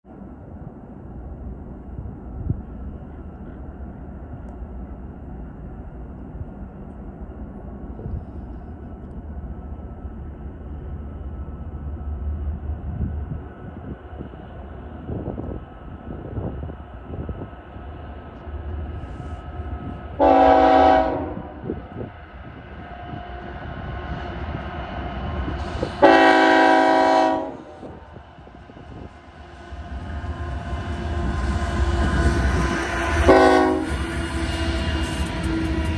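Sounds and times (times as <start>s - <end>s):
diesel locomotive engine rumble: 0.0s - 35.9s
train air horn blasts: 20.2s - 21.7s, 25.8s - 28.0s, 32.0s - 35.9s.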